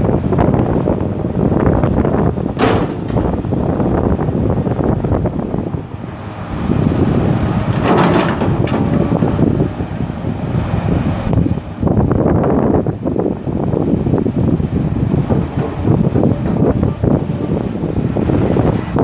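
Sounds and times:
excavator diesel engine under load: 0.0 - 19.0.

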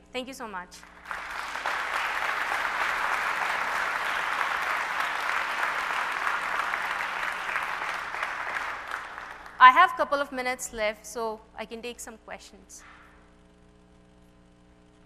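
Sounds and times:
audience applauding: 0.8 - 9.7.

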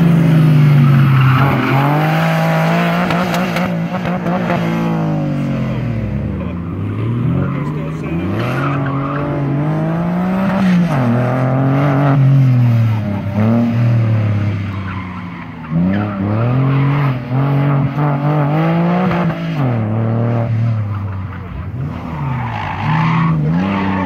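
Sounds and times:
car engine revving hard: 0.0 - 14.6
tire squeal: 0.6 - 4.0, 6.6 - 11.2, 12.8 - 17.9, 20.7 - 24.0.

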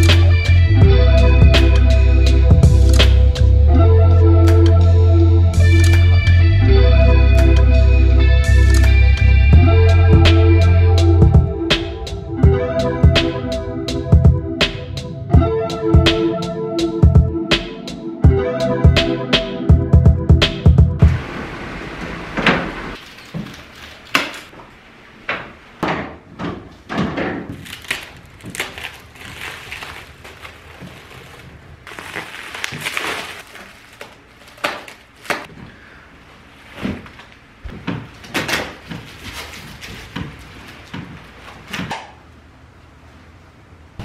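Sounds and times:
plastic wrap crinkling: 23.0 - 24.6, 27.5 - 35.5.

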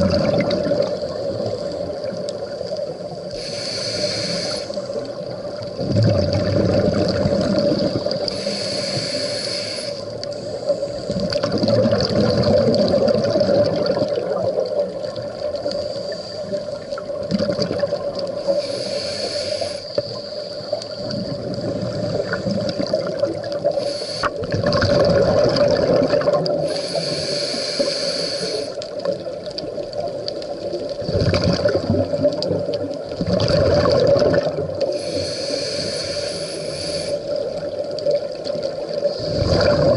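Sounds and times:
exhaled bubbles rushing: 0.0 - 2.5, 5.1 - 8.3, 11.1 - 15.6, 16.8 - 18.4, 21.0 - 26.7, 29.0 - 35.0, 37.3 - 39.9
regulator hissing inhale: 3.2 - 5.1, 8.0 - 11.3, 15.6 - 17.0, 18.3 - 22.7, 23.6 - 24.5, 26.6 - 29.2, 34.8 - 37.7.

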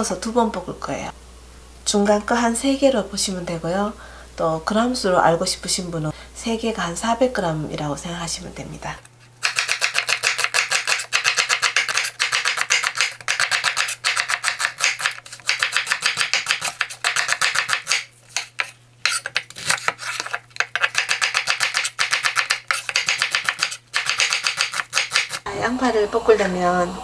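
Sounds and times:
knife chopping on wooden board: 9.4 - 25.4.

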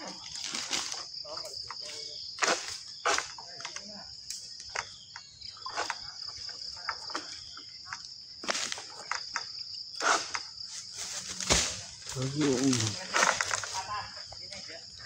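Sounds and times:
high insect chorus: 0.0 - 15.0
sickle knocking and scraping: 7.9 - 13.8.

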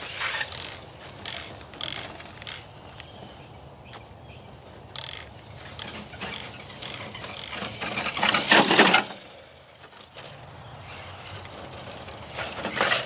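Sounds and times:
toy truck tires crackling on dirt: 0.0 - 13.0.

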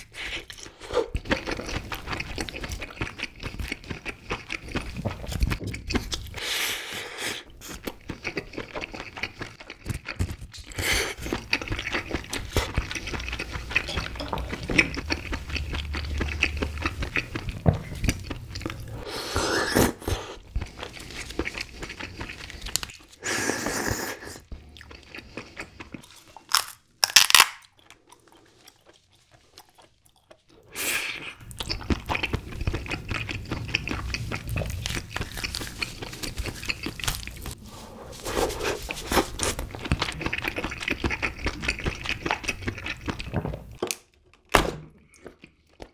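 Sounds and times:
close chewing with wet mouth sounds: 0.0 - 6.4, 7.1 - 19.1, 20.1 - 26.6, 27.7 - 37.6, 38.7 - 43.8
crunching: 31.5 - 42.5.

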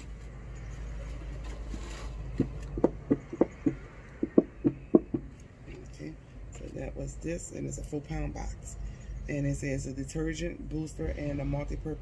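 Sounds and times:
taps on cardboard box: 2.4 - 5.3.

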